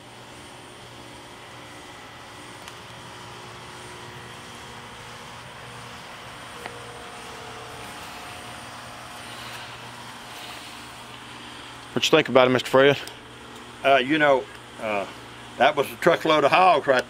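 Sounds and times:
motor drone: 0.0 - 17.0.

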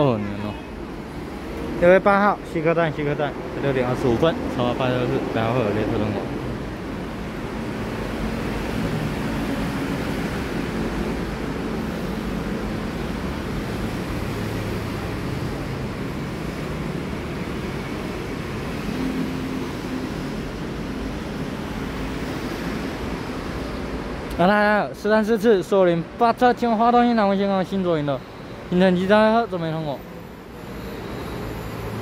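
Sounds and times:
distant road traffic rumble: 0.0 - 24.4.

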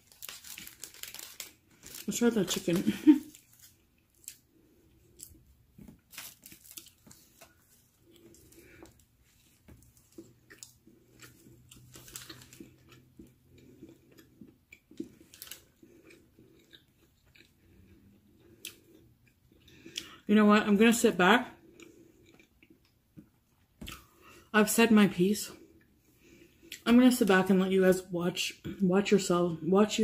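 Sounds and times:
chewing and biting food: 6.0 - 20.2, 21.6 - 24.1.

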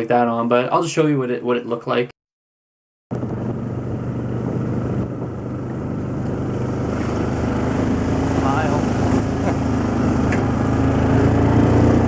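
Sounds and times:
engine humming steadily: 3.1 - 12.0.

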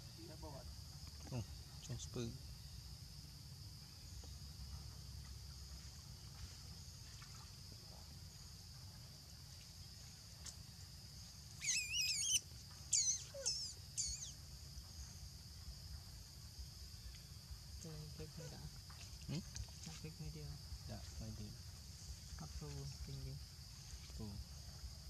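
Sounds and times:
high insect drone: 0.0 - 25.0
wavering squealing animal calls: 11.6 - 14.4.

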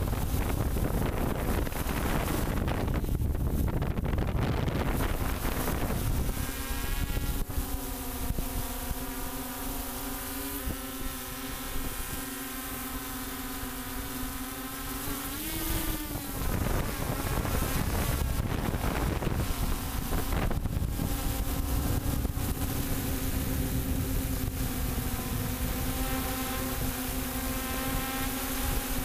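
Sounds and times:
wind buffeting: 0.0 - 7.6, 15.6 - 25.8
drone propellers humming: 0.0 - 29.0.

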